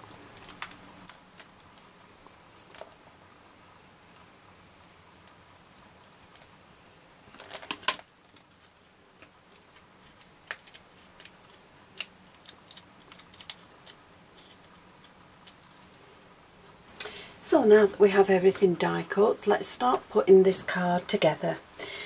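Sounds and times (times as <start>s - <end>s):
cardstock rustling: 7.2s - 16.1s.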